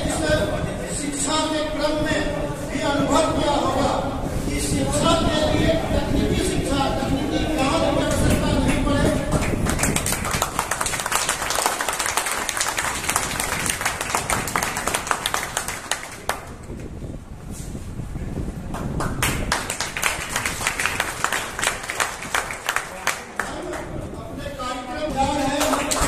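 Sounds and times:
audience clapping: 8.2s - 16.9s, 18.7s - 24.0s, 25.4s - 26.0s.

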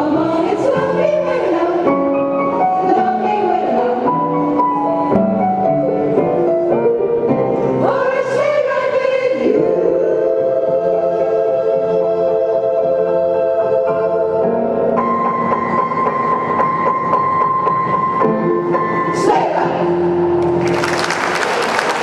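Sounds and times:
women's choir singing in harmony: 0.0s - 5.2s, 6.6s - 16.8s.

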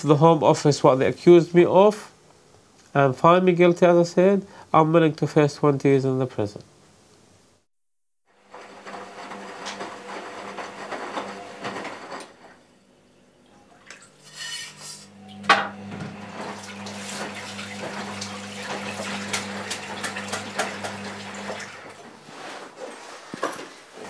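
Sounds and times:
household clinks and knocks: 22.8s - 24.0s.

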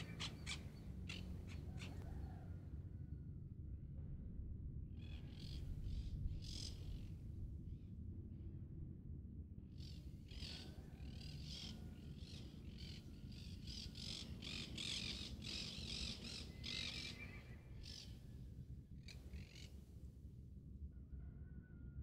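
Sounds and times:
birds harsh calls: 0.0s - 2.4s, 9.8s - 18.2s, 19.0s - 19.8s
steady low rumble: 0.0s - 22.0s.

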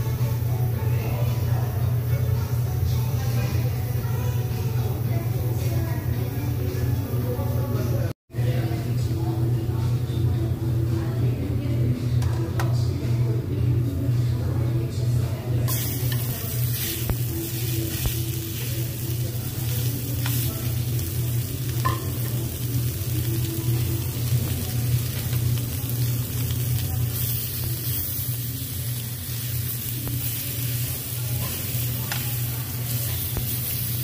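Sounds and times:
meat sizzling on a grill: 15.7s - 34.0s
metal tongs clicking on grill: 31.4s - 32.5s.

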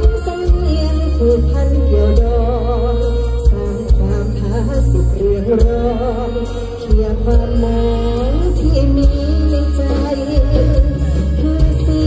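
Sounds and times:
heavy bass: 0.0s - 12.0s.

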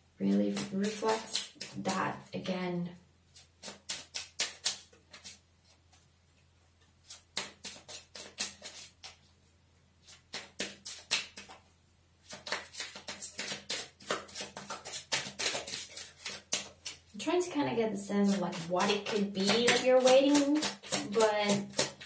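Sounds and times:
cards being shuffled: 0.5s - 2.0s, 3.3s - 6.0s, 7.0s - 9.3s, 10.0s - 11.6s, 12.2s - 17.1s, 18.3s - 22.0s.

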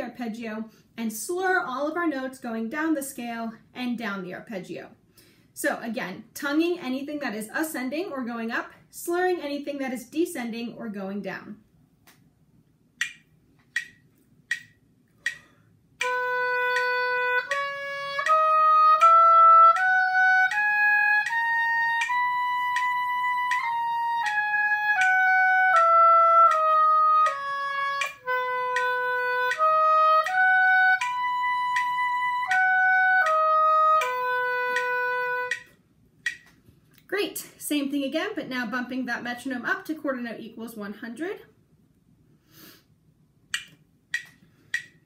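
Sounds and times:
metronome clicks: 13.0s - 36.6s, 43.5s - 45.0s
oboe playing scales: 16.0s - 35.7s.

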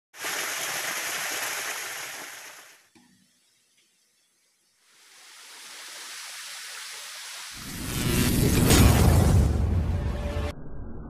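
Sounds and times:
waterfall splashing into pool: 0.2s - 2.9s, 4.9s - 7.8s.

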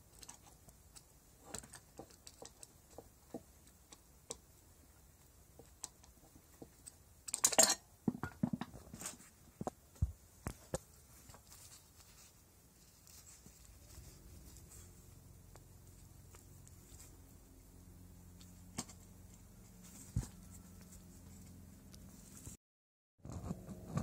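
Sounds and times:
rustling scrape: 10.6s - 17.6s, 18.4s - 22.6s.

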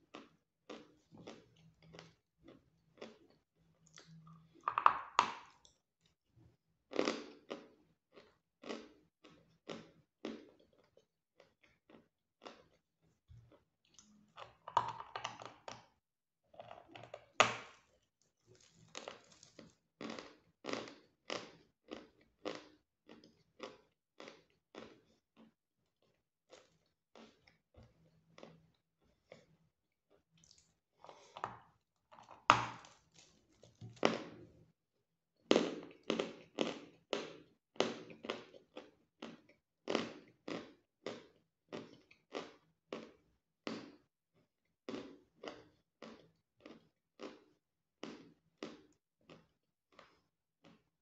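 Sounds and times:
crunchy chewing: 16.6s - 27.6s.

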